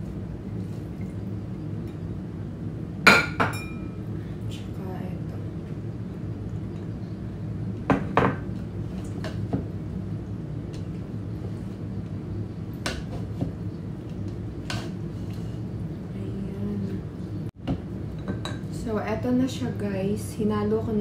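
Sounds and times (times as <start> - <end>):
steady low hum: 0.0 - 21.0
spatula scraping a mixing bowl: 14.7 - 15.7.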